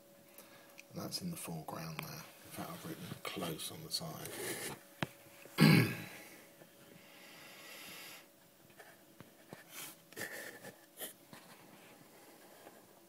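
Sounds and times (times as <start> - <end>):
faint breathing: 6.0 - 8.3.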